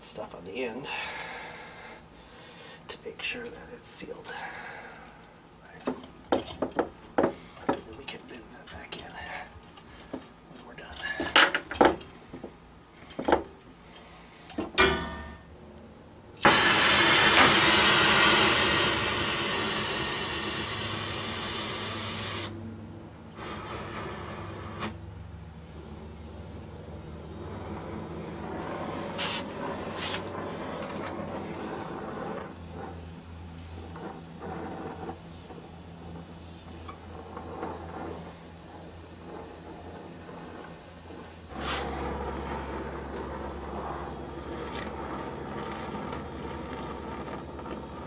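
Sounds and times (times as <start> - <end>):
torch gas hiss: 16.4 - 22.6, 25.6 - 48.0.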